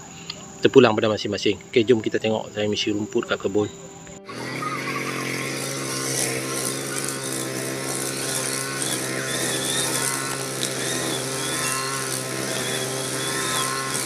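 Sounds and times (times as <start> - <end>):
brush cutter engine running: 4.1 - 14.0.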